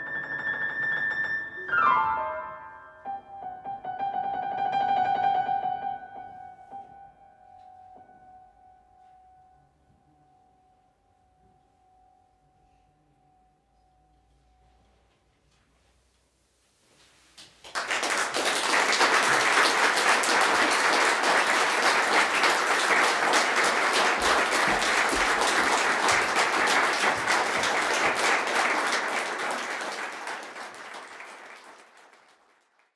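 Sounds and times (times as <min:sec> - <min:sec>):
audience applauding: 0:17.6 - 0:32.9.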